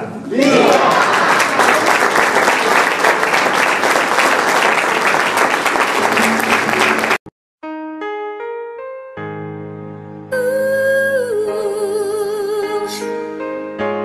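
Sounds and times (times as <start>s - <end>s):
crowd applauding: 0.3s - 7.3s
slow keyboard music: 7.6s - 14.0s.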